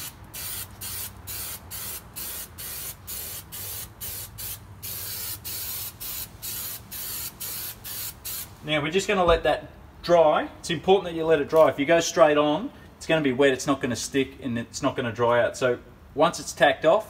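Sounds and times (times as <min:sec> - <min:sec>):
aerosol spray hissing: 0:00.0 - 0:08.6.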